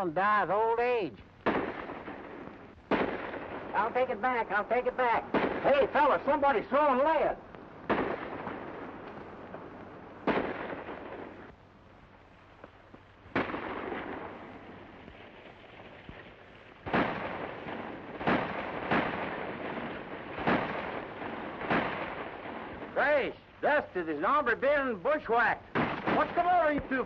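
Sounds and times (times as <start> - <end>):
gunshots with echoing tails: 1.4 - 7.1, 7.8 - 11.5, 13.3 - 23.0, 25.7 - 27.0.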